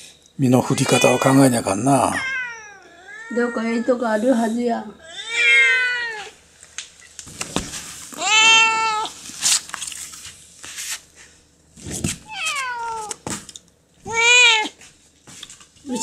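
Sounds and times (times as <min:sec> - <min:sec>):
cat yowling: 0:00.6 - 0:04.2, 0:05.0 - 0:06.4, 0:08.2 - 0:09.2, 0:12.2 - 0:13.2, 0:14.1 - 0:14.8
cat hissing: 0:00.7 - 0:06.4.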